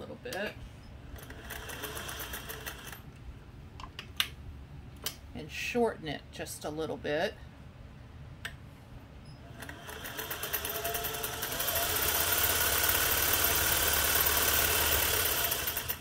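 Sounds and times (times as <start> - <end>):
sewing machine stitching: 1.2 - 3.0, 9.5 - 16.0.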